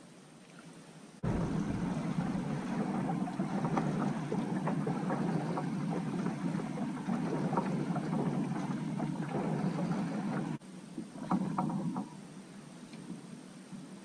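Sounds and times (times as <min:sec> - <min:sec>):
low rushing noise: 0:01.2 - 0:09.2
paddle stroking through water: 0:01.2 - 0:12.1
water dripping: 0:01.3 - 0:09.3.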